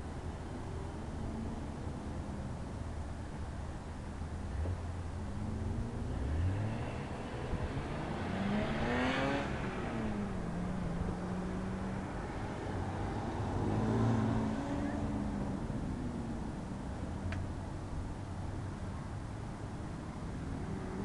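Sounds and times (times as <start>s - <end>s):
car engine revving and accelerating: 5.1s - 16.7s, 20.2s - 21.0s.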